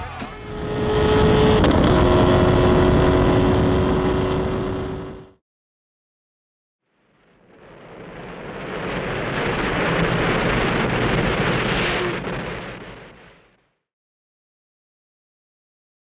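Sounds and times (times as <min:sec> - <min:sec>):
rushing swell: 0:07.6 - 0:13.2
high rising whistle: 0:10.4 - 0:12.3.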